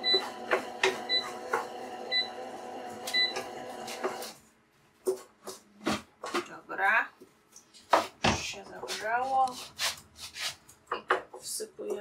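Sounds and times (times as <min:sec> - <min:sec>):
kitchen robot humming: 0:00.0 - 0:04.4.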